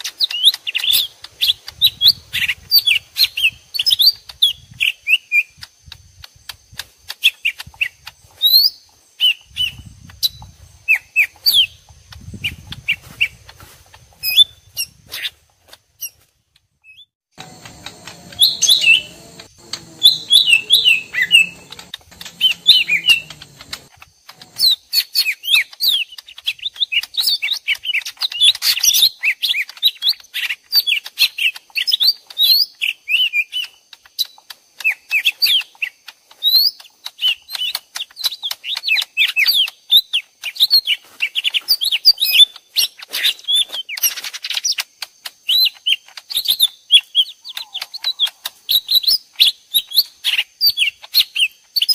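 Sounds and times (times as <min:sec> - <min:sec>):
birds chirping rapidly: 0:17.0 - 0:24.9
faint low hum: 0:17.4 - 0:24.6.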